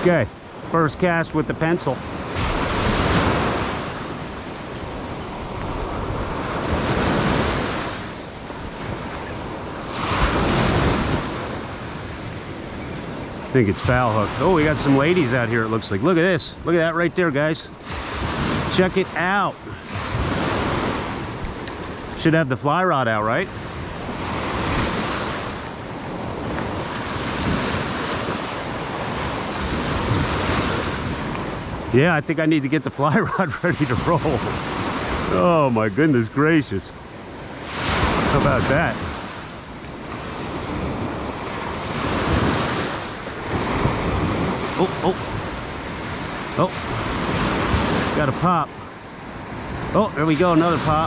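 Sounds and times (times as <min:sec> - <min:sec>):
surf waves breaking: 0:00.0 - 0:51.0
wind buffeting microphone: 0:01.9 - 0:22.5, 0:23.4 - 0:51.0.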